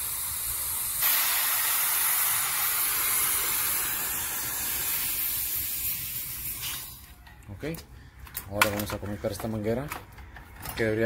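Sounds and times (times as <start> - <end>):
gas hissing through hoses: 0.0 - 7.2.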